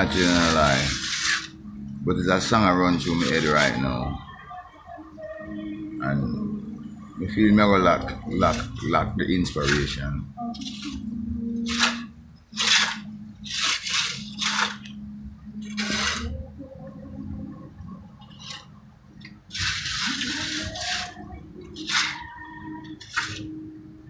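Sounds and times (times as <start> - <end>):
trowel scraping cement on wall: 0.0 - 1.6, 2.9 - 3.8, 8.3 - 10.0, 11.7 - 15.0, 15.6 - 16.4, 18.2 - 18.7, 19.5 - 23.5.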